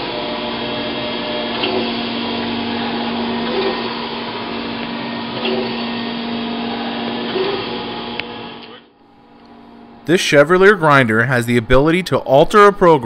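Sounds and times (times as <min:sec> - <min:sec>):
surface grinder humming: 0:00.0 - 0:10.1.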